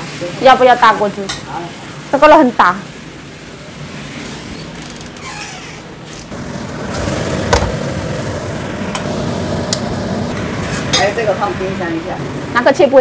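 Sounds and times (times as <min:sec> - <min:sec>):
food sizzling in a frying pan: 0:00.0 - 0:04.1.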